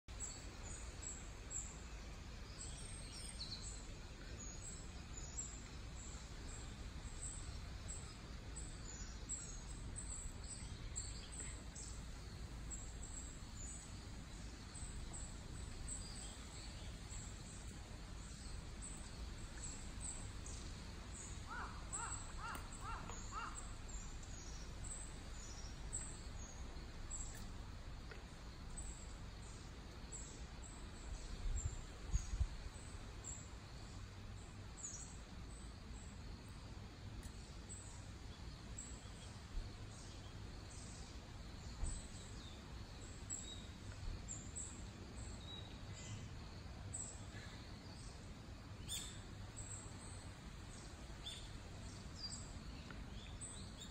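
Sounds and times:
bird calling: 0:21.5 - 0:23.8.

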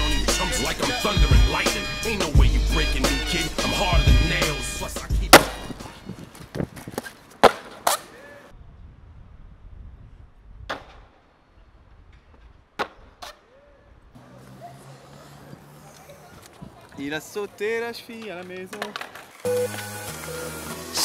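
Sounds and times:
skateboard wheels rolling on paving: 0:03.3 - 0:08.5, 0:14.2 - 0:21.0
skateboard knocks on concrete: 0:18.2 - 0:19.3.

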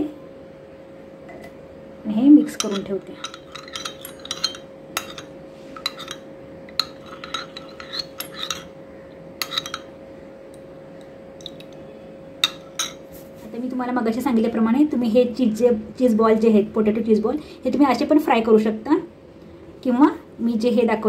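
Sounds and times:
faint steady hum: 0:00.0 - 0:21.0
spoon clinking and scraping glass: 0:02.6 - 0:08.8, 0:09.4 - 0:09.9, 0:11.4 - 0:11.8, 0:12.4 - 0:13.0.

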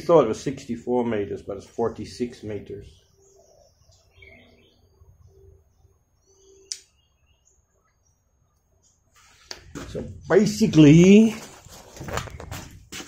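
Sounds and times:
faint bird chirps: 0:02.8 - 0:09.5.

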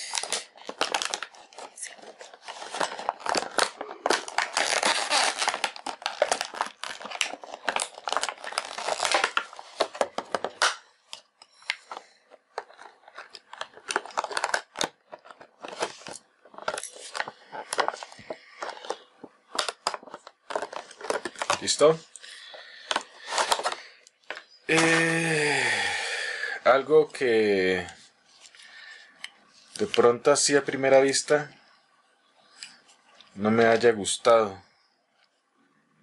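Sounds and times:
plastic packaging crackling: 0:00.0 - 0:25.8.

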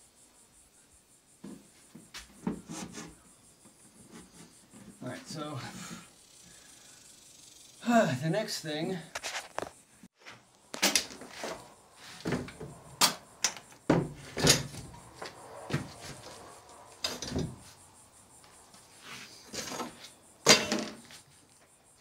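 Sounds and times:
wood scraping on wood: 0:02.4 - 0:03.2.

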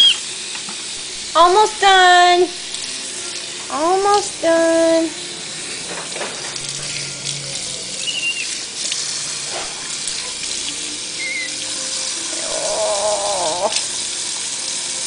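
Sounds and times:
monkey high chirps: 0:00.0 - 0:00.2, 0:08.0 - 0:08.5, 0:11.2 - 0:11.6
tap water splashing in a sink: 0:02.6 - 0:04.3, 0:05.7 - 0:12.3, 0:13.3 - 0:15.0
wavering voice-like sound: 0:12.3 - 0:13.9.

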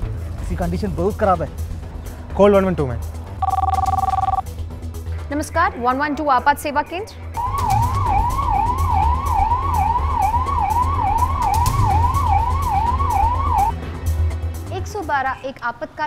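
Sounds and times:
emergency vehicle siren wailing: 0:07.4 - 0:13.7.

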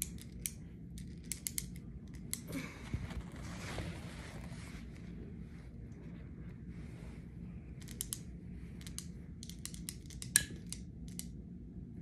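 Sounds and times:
bbs clicking and rattling: 0:00.0 - 0:02.5, 0:07.8 - 0:11.4.

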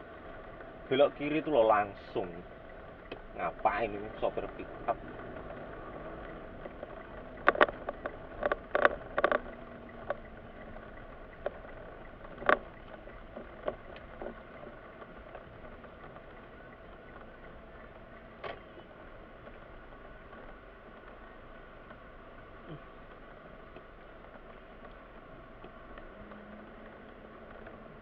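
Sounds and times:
car cabin hum: 0:00.0 - 0:28.0.

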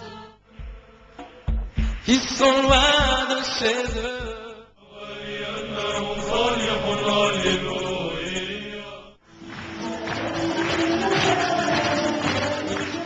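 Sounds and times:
chant-like hymn singing: 0:00.0 - 0:13.0
song: 0:00.0 - 0:13.0.

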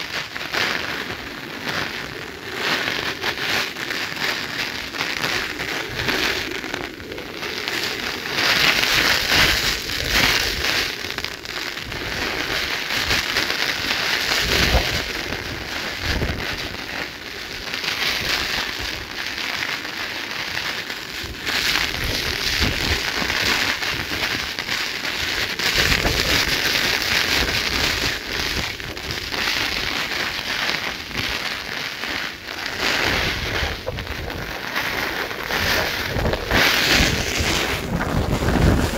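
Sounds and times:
heavy rain falling: 0:14.4 - 0:16.8, 0:25.2 - 0:29.3, 0:32.3 - 0:38.9
wind buffeting microphone: 0:14.4 - 0:16.8, 0:21.3 - 0:24.2, 0:25.7 - 0:26.6, 0:33.0 - 0:38.9.

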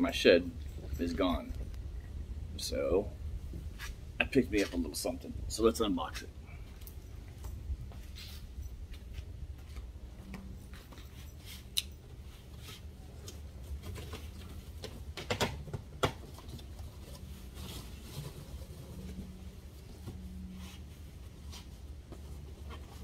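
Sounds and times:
low steady rumble: 0:00.0 - 0:15.2.

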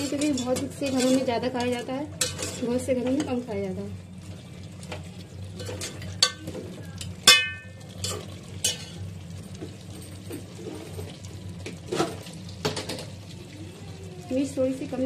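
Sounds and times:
metal spoon scraping pot: 0:00.0 - 0:02.7
light sizzle: 0:00.0 - 0:15.0.

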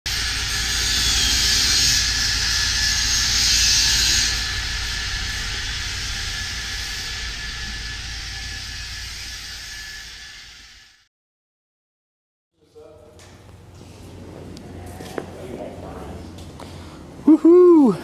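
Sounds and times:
loud rushing noise: 0:00.1 - 0:11.0
faint steady whistle: 0:00.1 - 0:11.1.

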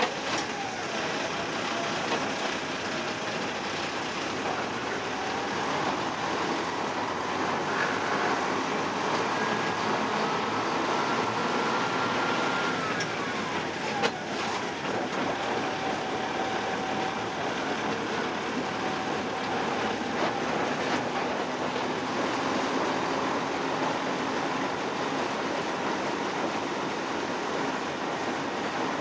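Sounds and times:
diesel locomotive engine running: 0:00.0 - 0:29.0.

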